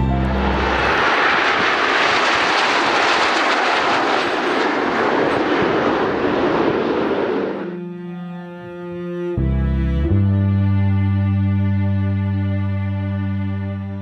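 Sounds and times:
music track: 0.0 - 1.1, 7.7 - 14.0
jets passing overhead: 0.0 - 8.1.

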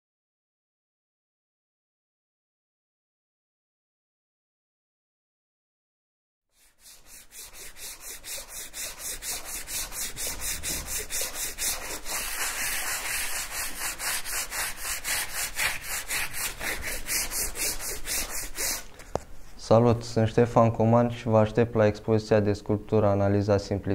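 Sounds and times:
hand sanding rubbing strokes: 6.5 - 19.0.

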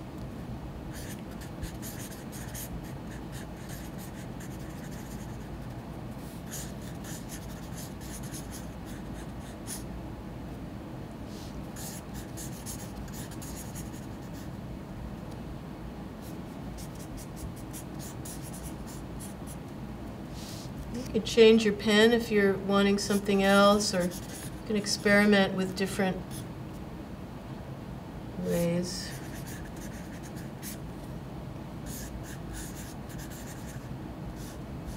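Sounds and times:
pen scratching on paper: 0.9 - 5.6, 6.5 - 9.8, 11.8 - 14.5, 16.2 - 19.6, 24.0 - 24.6, 29.1 - 30.8, 31.9 - 34.9.

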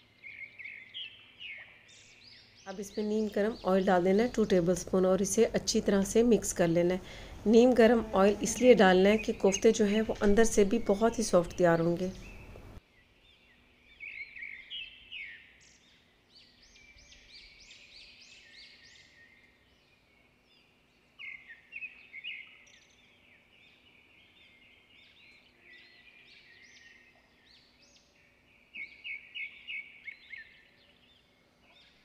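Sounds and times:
faint steady hum: 0.0 - 14.1
birds chirping: 0.0 - 32.0.

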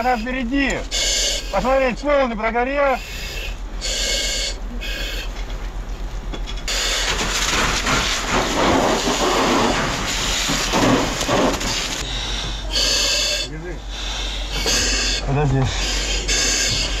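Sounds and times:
water spraying from fire hose: 6.7 - 12.0
short hissing puffs: 11.6 - 17.0.

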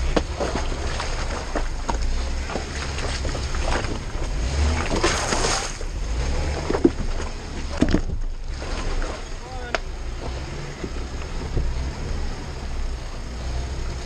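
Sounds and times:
rocks knocking under tyres: 0.0 - 8.9
engine running low and steady: 0.0 - 14.0.

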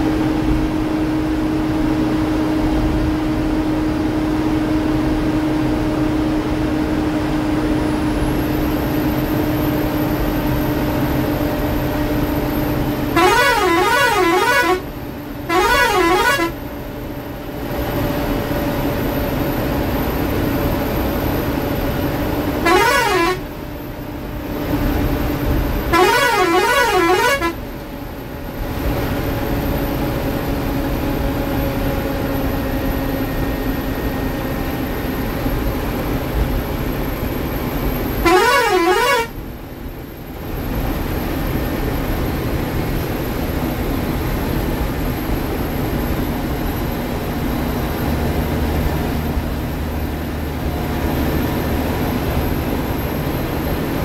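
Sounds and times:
bus engine and road noise: 0.0 - 54.0
warbling horn: 13.1 - 14.9, 15.5 - 16.6, 22.6 - 23.5, 25.9 - 27.6, 38.2 - 39.4.

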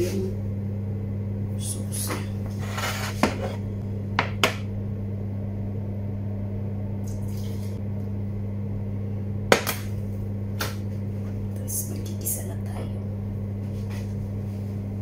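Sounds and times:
low electrical hum: 0.0 - 15.0
cookware scraping on cooktop: 2.5 - 3.6.

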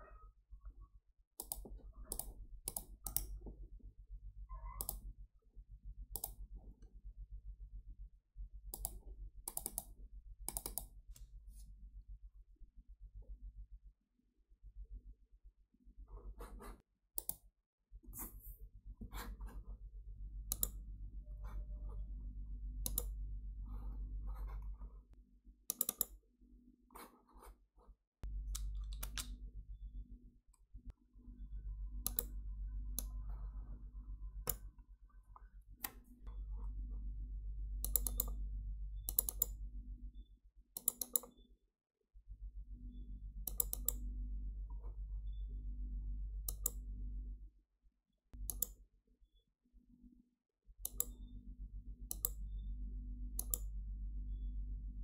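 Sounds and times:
computer mouse clicking: 1.4 - 3.4, 4.8 - 5.1, 6.1 - 6.4, 8.7 - 11.3, 17.2 - 17.4, 20.5 - 20.8, 22.8 - 23.2, 25.7 - 26.2, 28.5 - 29.4, 32.0 - 32.4, 34.4 - 34.7, 37.8 - 38.4, 39.0 - 39.6, 40.8 - 41.4, 43.4 - 44.1, 46.5 - 46.8, 48.4 - 48.8, 50.8 - 51.3, 52.1 - 52.4, 53.4 - 53.7
steady low hum: 18.2 - 25.2, 28.2 - 40.4, 50.9 - 55.0.

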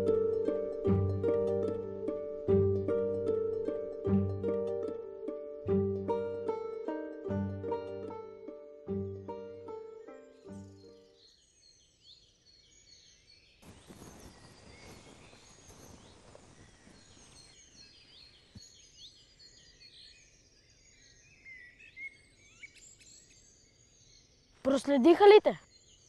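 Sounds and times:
small birds chirping: 9.0 - 26.0
soft hiss of noise: 13.6 - 19.5.

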